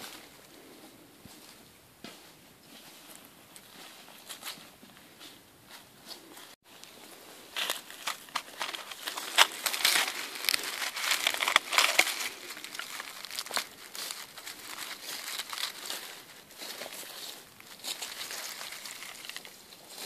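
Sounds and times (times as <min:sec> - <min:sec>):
dry leaves rustling: 0:06.4 - 0:20.0.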